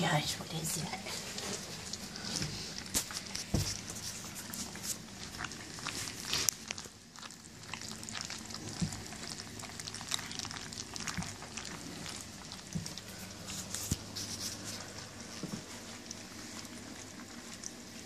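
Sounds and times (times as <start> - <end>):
puppies lapping and chewing food: 0.1 - 18.0.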